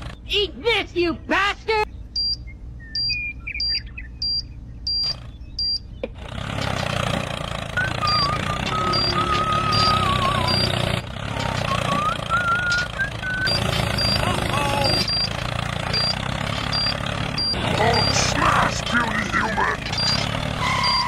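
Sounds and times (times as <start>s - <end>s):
timer beeping: 2.2s - 5.8s, 7.9s - 10.8s, 13.4s - 18.3s, 20.0s - 21.0s
wavering whistle-like tone: 7.8s - 10.8s, 11.6s - 13.5s
toy motor running: 7.8s - 15.3s.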